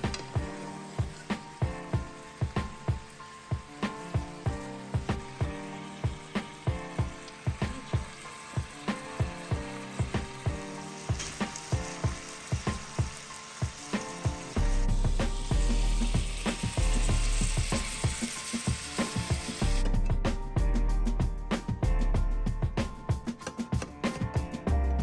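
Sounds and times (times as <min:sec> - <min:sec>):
steaks sizzling in a pan: 0:00.0 - 0:19.8
music with ticking beat and bass: 0:14.0 - 0:25.0.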